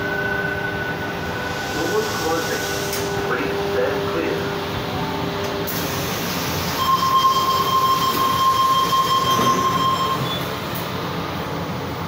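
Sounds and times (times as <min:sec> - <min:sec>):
train carriage running noise: 0:00.0 - 0:12.0
train doors sliding shut: 0:01.5 - 0:03.3, 0:05.2 - 0:11.2
high electronic warning tone: 0:06.8 - 0:10.5.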